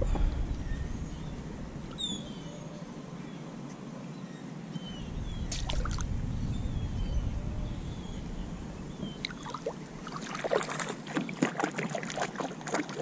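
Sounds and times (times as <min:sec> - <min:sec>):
low rumble: 0:00.0 - 0:03.2, 0:04.8 - 0:10.8
water splashing: 0:05.4 - 0:06.3, 0:08.8 - 0:13.0.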